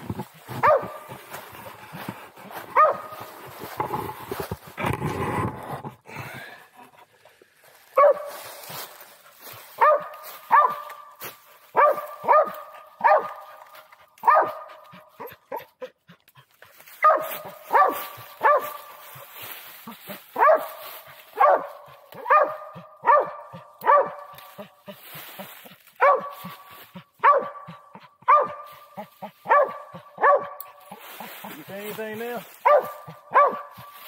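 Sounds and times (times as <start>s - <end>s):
dry leaves rustling underfoot: 0.0s - 4.8s, 7.1s - 14.4s, 16.6s - 22.4s, 23.9s - 27.1s, 28.6s - 29.8s, 30.6s - 34.0s
dog barking: 0.5s - 1.2s, 2.7s - 3.3s, 8.0s - 8.4s, 9.7s - 15.9s, 17.0s - 19.0s, 20.1s - 24.8s, 26.0s - 31.0s, 32.6s - 34.0s.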